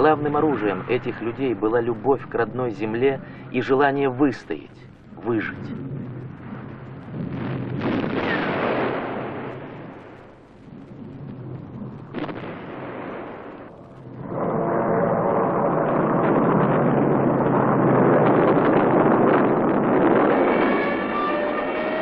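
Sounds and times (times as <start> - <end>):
rumbling blast: 0.0 - 22.0
sharp crack: 4.4 - 22.0
aircraft engines droning: 14.2 - 22.0.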